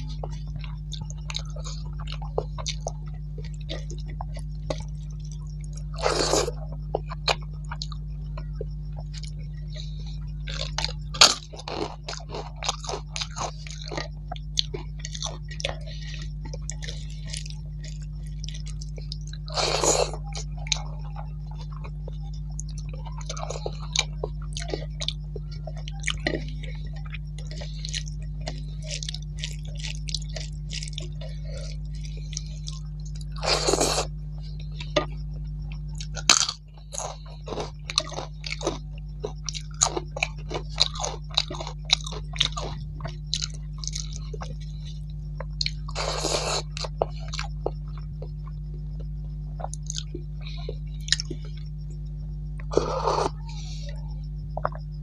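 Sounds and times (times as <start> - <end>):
crunchy bites: 0.0 - 55.0
low hum: 0.0 - 55.0
person chewing food: 0.0 - 55.0
wet mouth clicks and smacks: 39.2 - 51.7, 54.5 - 54.9.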